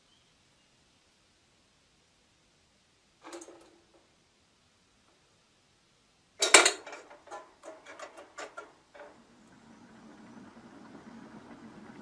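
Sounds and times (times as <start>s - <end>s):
metal pot knocks and clinks: 6.4s - 9.1s.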